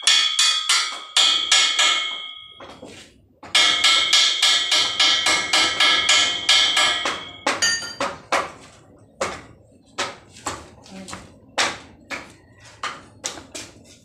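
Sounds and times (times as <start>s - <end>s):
hammer striking metal pipe: 0.0s - 8.6s.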